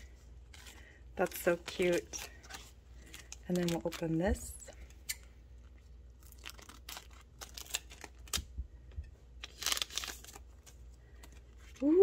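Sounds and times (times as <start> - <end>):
foil packet crinkling: 0.0 - 8.5, 9.4 - 11.8.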